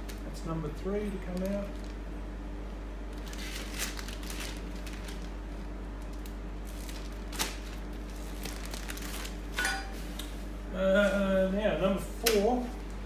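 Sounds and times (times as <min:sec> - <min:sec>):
plastic bag crinkling: 0:01.1 - 0:02.2, 0:03.1 - 0:10.1.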